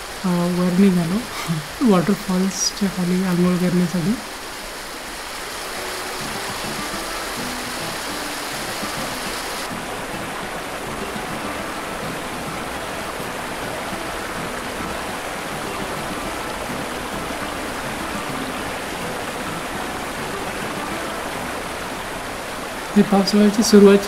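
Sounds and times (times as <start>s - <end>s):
stream rushing over rocks: 0.0s - 24.0s.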